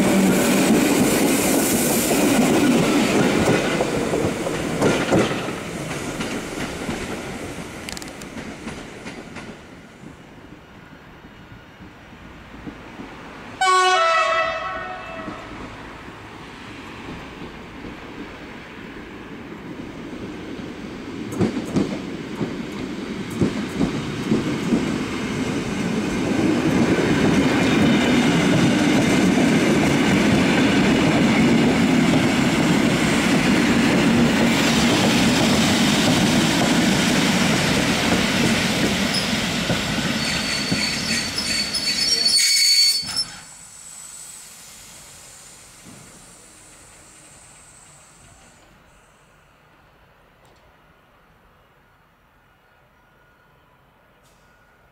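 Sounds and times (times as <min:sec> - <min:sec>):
wheels clacking over rail joints: 0:00.0 - 0:09.6
train running past: 0:00.0 - 0:54.9
train horn blast: 0:13.6 - 0:15.6
thin wheel squeal: 0:40.2 - 0:43.5.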